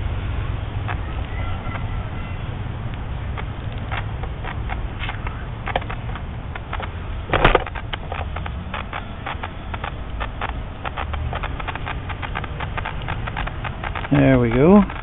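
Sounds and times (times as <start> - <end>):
steady low rumble: 0.0 - 15.0
hands handling tubing clicks: 2.9 - 15.0.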